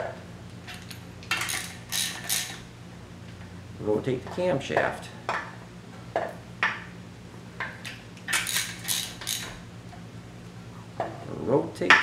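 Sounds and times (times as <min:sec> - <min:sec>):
ratchet wrench clicking: 0:00.7 - 0:02.6, 0:08.3 - 0:09.6.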